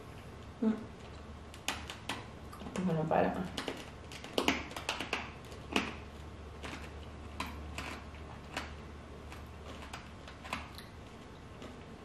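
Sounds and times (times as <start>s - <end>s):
hard candy crunching: 3.4s - 12.0s.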